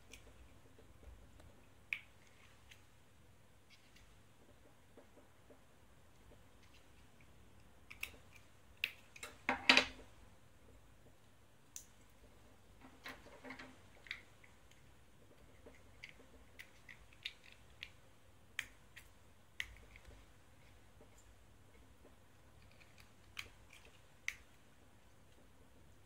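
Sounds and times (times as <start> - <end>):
plastic parts clicking and tapping: 12.8 - 14.2.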